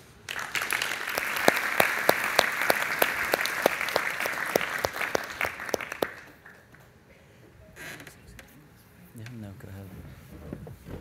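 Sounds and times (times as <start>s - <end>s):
audience applauding: 0.3s - 6.8s.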